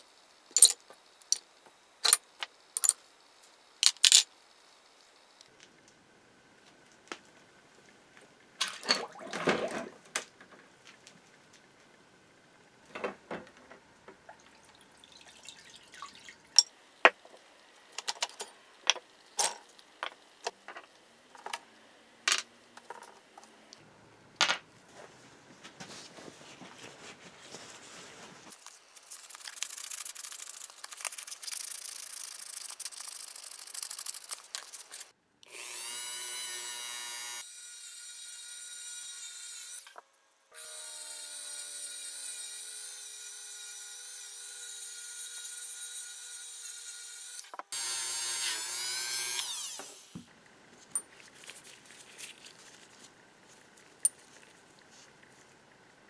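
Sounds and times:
metal parts clinking on concrete: 0:00.6 - 0:00.8, 0:02.8 - 0:03.0, 0:03.8 - 0:04.3
liquid dripping and splashing: 0:14.3 - 0:16.6
rotary tool whine: 0:35.5 - 0:37.5, 0:47.8 - 0:50.2.

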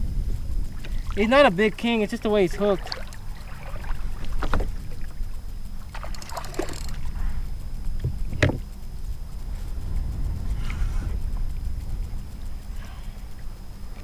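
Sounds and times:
low wind rumble: 0:00.0 - 0:14.0
water slapping around a kayak: 0:00.7 - 0:07.1
rapid ticking: 0:05.0 - 0:14.0.

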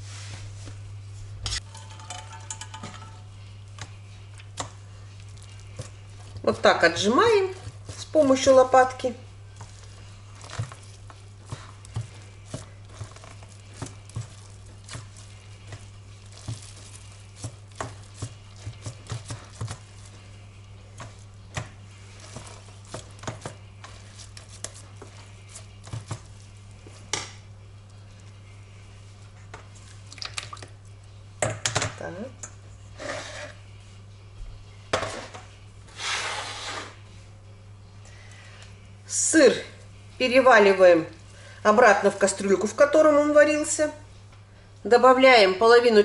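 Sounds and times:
steady low hum: 0:00.0 - 0:46.0
spatula knocking on colander: 0:01.7 - 0:03.2.

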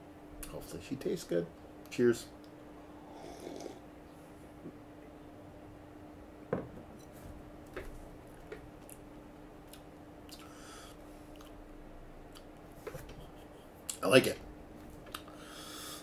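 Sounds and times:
faint steady hum: 0:00.0 - 0:16.0
lip smacks and wet clicks: 0:09.6 - 0:10.5, 0:11.3 - 0:11.6, 0:12.3 - 0:12.6.

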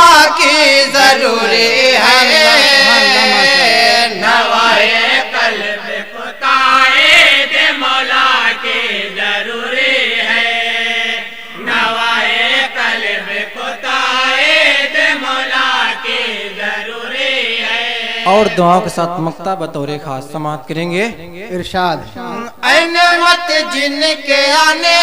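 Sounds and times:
person chanting devotional poem: 0:00.0 - 0:25.0.

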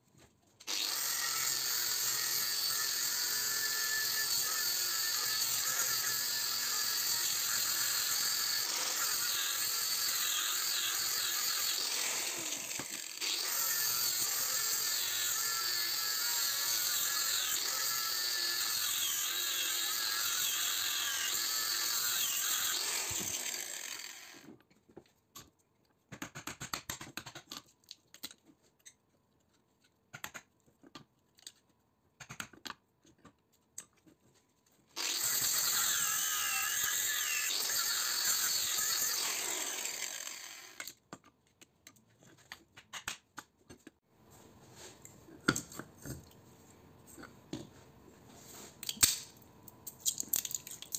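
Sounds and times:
angle grinder cutting steel: 0:00.7 - 0:24.5, 0:35.0 - 0:40.9.

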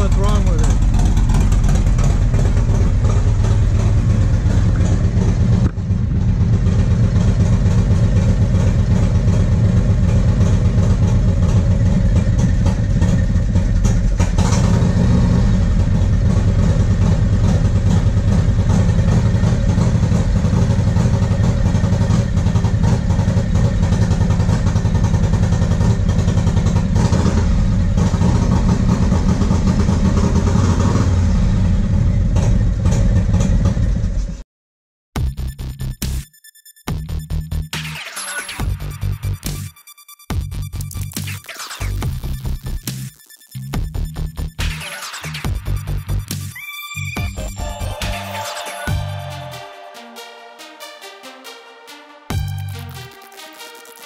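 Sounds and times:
motorcycle engine misfiring: 0:00.0 - 0:30.2.

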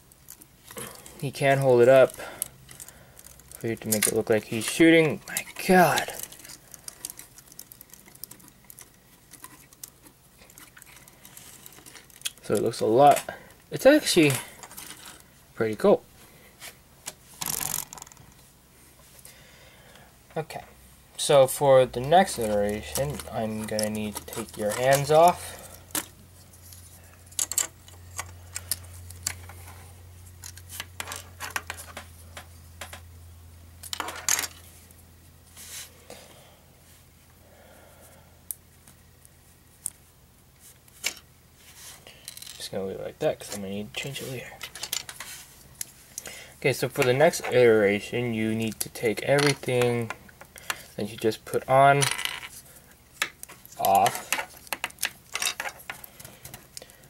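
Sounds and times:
low electrical hum: 0:00.0 - 0:57.0
plastic parts clicking: 0:27.3 - 0:29.6
plastic parts clicking and tapping: 0:27.3 - 0:29.6, 0:53.2 - 0:56.9.

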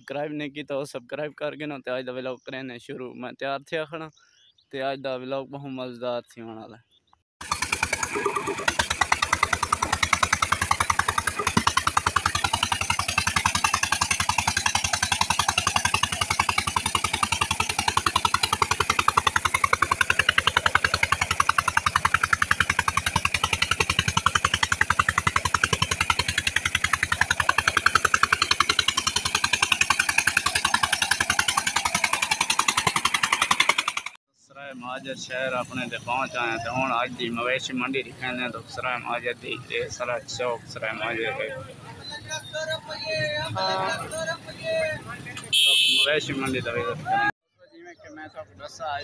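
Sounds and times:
small engine thumping: 0:07.4 - 0:34.2
water pouring into tank: 0:07.7 - 0:09.0.

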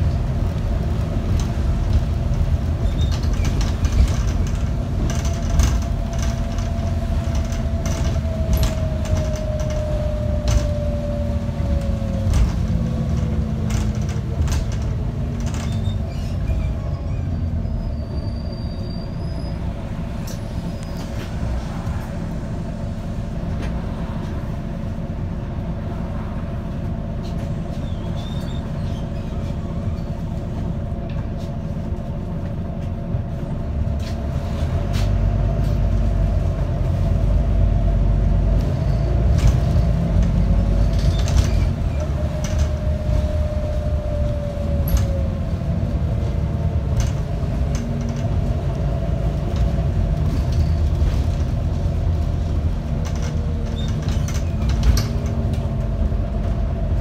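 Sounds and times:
bus diesel engine rumble: 0:00.0 - 0:57.0
body rattles and clicks: 0:00.4 - 0:16.5, 0:38.5 - 0:57.0.

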